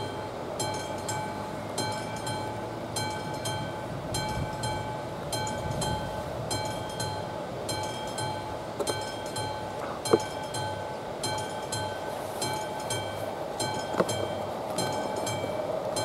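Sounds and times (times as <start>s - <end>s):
mechanical warning bell ringing: 0.0s - 16.0s
steady low rumble: 0.0s - 16.0s.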